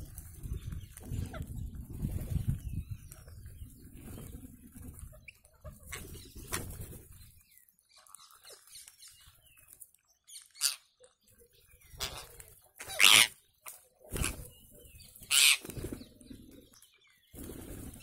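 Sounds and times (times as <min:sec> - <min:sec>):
wings flapping: 0:00.0 - 0:07.4, 0:12.0 - 0:16.7, 0:17.3 - 0:18.0
parakeets chirping: 0:11.9 - 0:13.4, 0:15.2 - 0:15.6.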